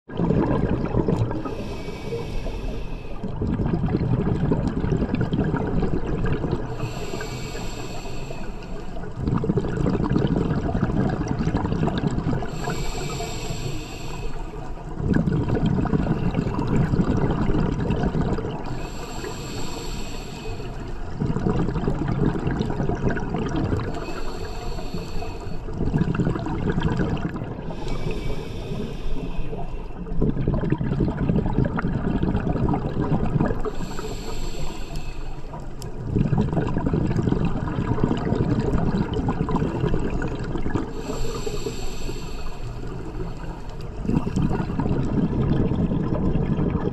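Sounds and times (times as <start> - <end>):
exhaled bubbles rushing: 0.1 - 7.0, 8.9 - 12.9, 14.8 - 19.0, 20.9 - 24.3, 25.7 - 34.2, 35.5 - 41.5, 42.9 - 46.9
regulator inhale hiss: 1.4 - 3.3, 6.7 - 9.2, 12.5 - 14.8, 18.6 - 21.2, 23.8 - 25.8, 27.6 - 30.1, 33.6 - 35.9, 40.9 - 44.4.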